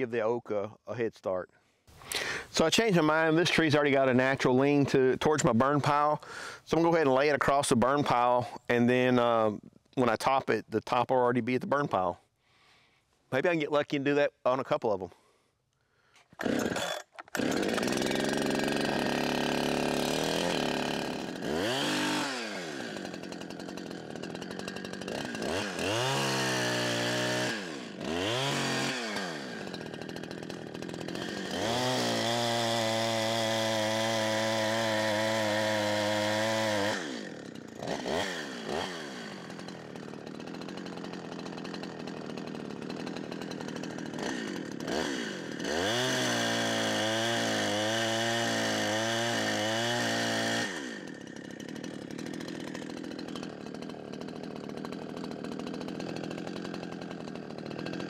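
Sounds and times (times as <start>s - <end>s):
chainsaw cutting into tree: 16.3s - 58.0s.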